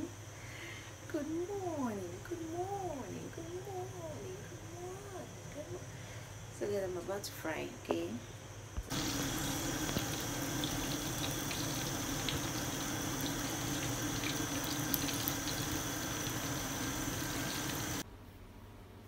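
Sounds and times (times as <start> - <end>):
fish sizzling in hot oil: 8.9 - 18.0.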